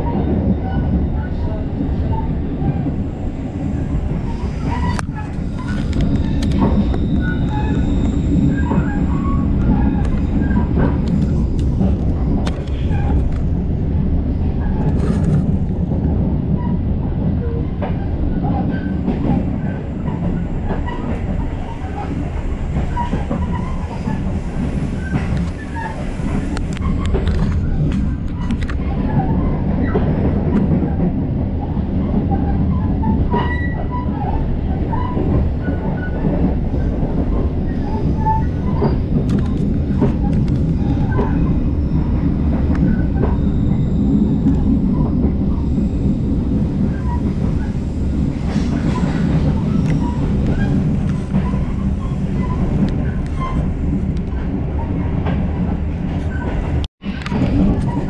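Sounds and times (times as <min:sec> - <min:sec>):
train wheels rumbling on rail: 0:00.0 - 0:58.0
short clicks and squeaks: 0:04.7 - 0:11.4, 0:38.5 - 0:41.4.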